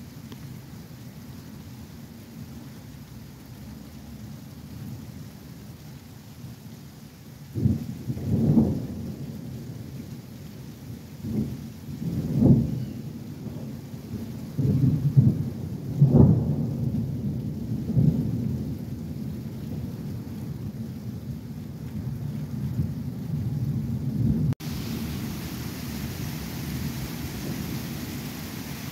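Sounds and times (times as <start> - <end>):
rolling thunder: 7.6 - 9.9, 11.2 - 12.8, 13.4 - 20.3, 22.0 - 28.9.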